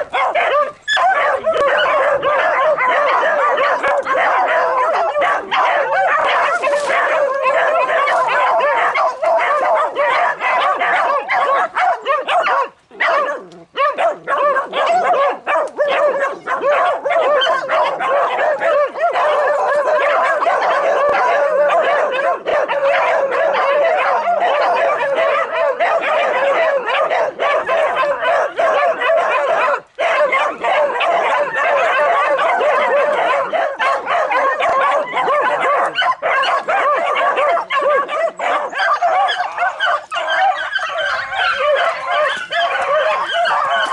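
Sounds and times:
pack of dogs baying: 0.0 - 43.9.

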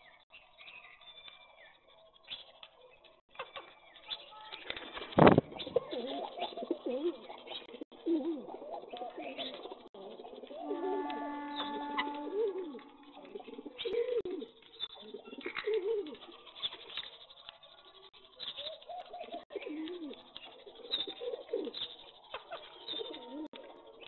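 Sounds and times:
pigeons cooing: 5.5 - 17.1, 18.4 - 24.0.

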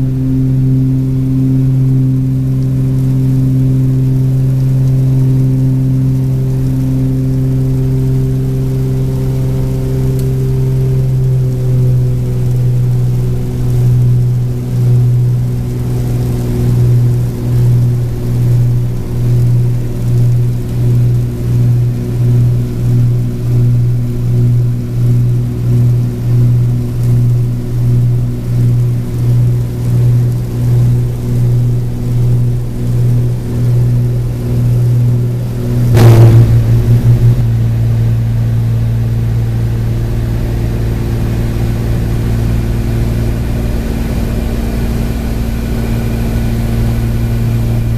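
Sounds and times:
propeller plane cabin drone: 0.0 - 47.9
sharp knock: 35.9 - 38.1.

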